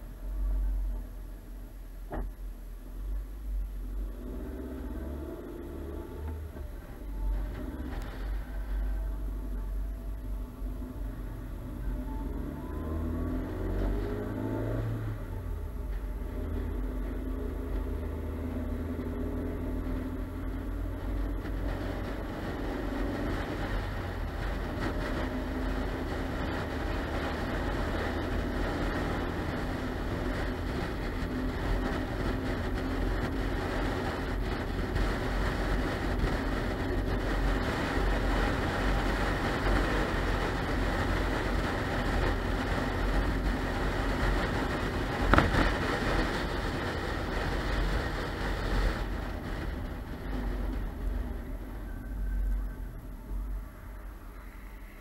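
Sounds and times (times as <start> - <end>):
car engine hum: 0.0 - 55.0
tyre and wind noise: 17.6 - 52.1.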